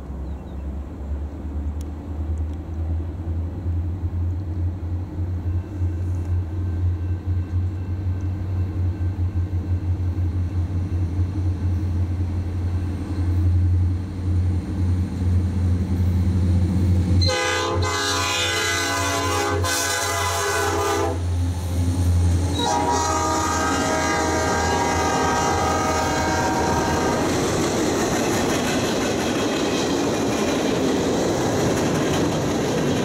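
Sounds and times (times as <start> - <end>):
diesel locomotive engine rumble: 0.0 - 33.0
locomotive horn chord blast: 17.2 - 21.4, 22.5 - 27.2.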